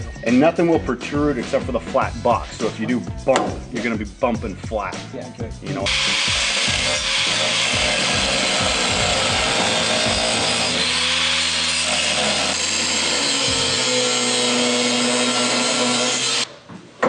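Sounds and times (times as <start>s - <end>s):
angle grinder cutting steel: 5.9s - 16.5s.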